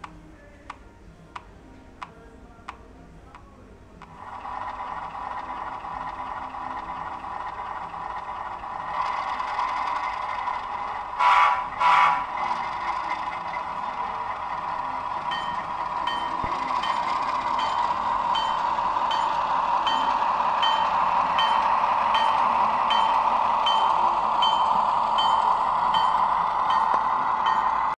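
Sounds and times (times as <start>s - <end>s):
engine and wheels running hum: 0.0s - 28.0s
locomotive bell ringing: 12.4s - 28.0s.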